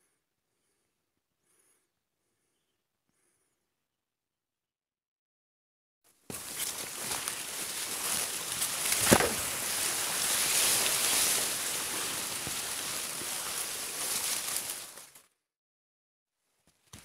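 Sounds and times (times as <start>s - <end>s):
grass and leaves rustling: 6.1s - 15.3s.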